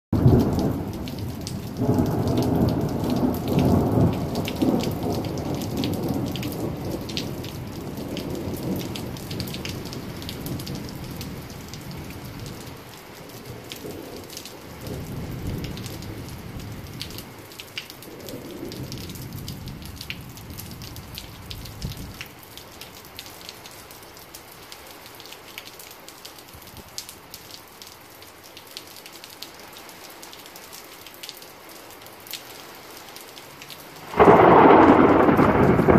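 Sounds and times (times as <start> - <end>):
steady rain: 0.1 - 35.9
rolling thunder: 0.2 - 12.6, 34.0 - 35.9
raindrops ticking: 0.2 - 35.9.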